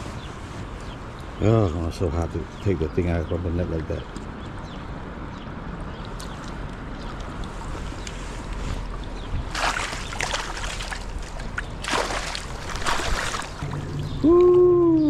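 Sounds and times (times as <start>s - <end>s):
low steady rumble: 0.0s - 15.0s
water splashing: 6.0s - 14.7s.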